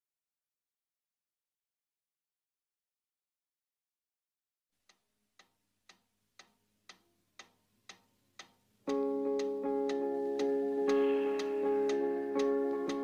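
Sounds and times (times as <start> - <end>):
clock-like ticking: 4.9 - 13.0
music with held chords: 8.9 - 13.0.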